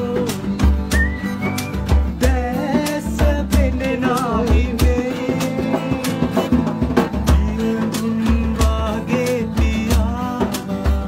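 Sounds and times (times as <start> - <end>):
low beat: 0.0 - 5.2
guitar: 0.0 - 11.0
man singing: 0.0 - 11.0.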